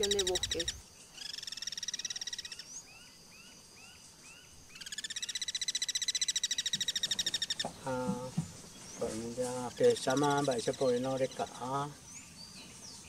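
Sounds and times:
animal pulsed trills: 0:00.0 - 0:08.0.

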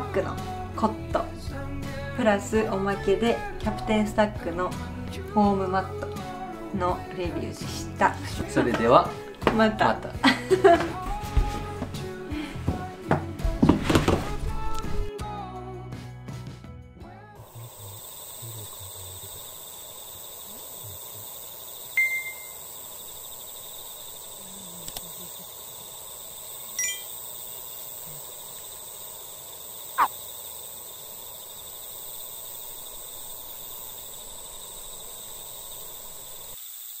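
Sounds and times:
insects chirring: 0:00.0 - 0:11.1, 0:17.4 - 0:37.0
short ringing calls: 0:21.9 - 0:22.8, 0:26.7 - 0:27.3.

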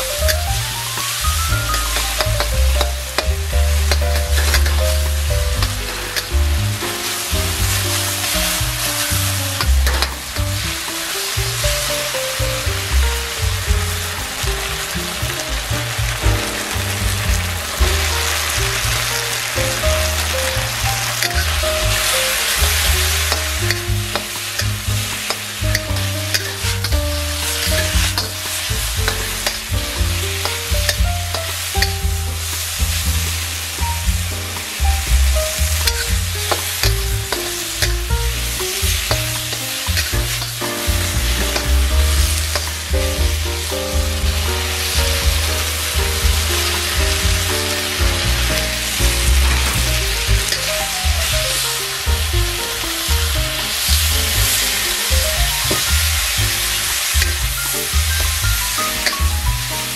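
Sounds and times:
background music: 0:00.0 - 0:59.9
food sizzling in a wok: 0:00.0 - 0:59.9
metal spatula scraping wok: 0:13.9 - 0:29.6, 0:35.8 - 0:42.8.

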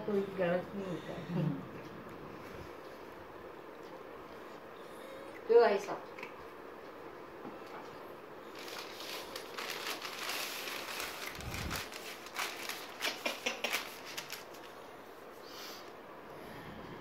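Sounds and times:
crackly rustling of paper: 0:08.4 - 0:14.9
hands rubbing and patting skin: 0:11.3 - 0:14.7.

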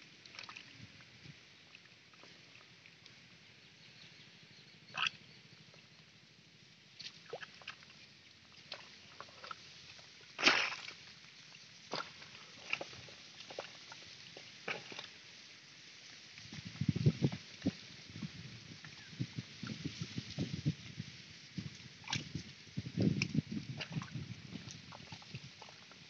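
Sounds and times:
mud squelches and splashes: 0:00.2 - 0:03.1, 0:06.9 - 0:26.0.

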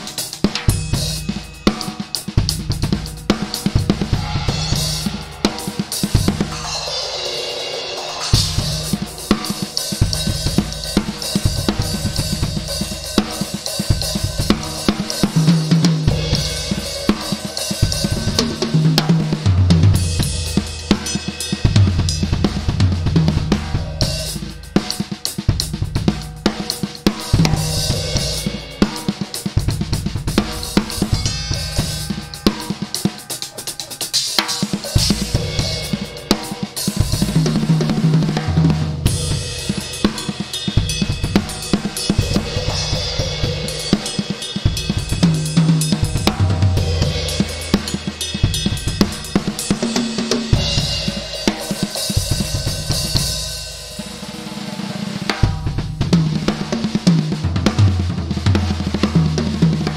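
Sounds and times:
drum kit playing: 0:00.0 - 0:59.9
toms ringing at pitches: 0:30.3 - 0:37.9.

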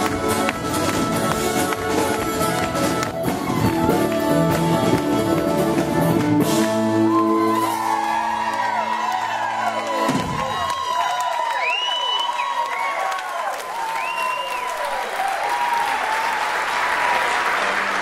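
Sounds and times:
drumming: 0:00.0 - 0:08.4
live folk band playing: 0:00.0 - 0:10.8
crowd whooping: 0:06.7 - 0:18.0.

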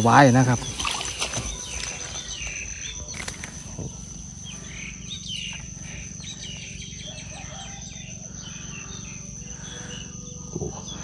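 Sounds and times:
insect trilling: 0:00.0 - 0:11.0.

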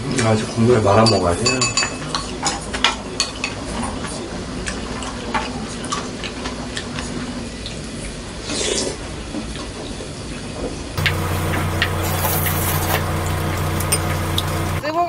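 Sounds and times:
soup being stirred and sloshed: 0:11.0 - 0:14.8
spoon clinking bowls: 0:11.0 - 0:14.8.

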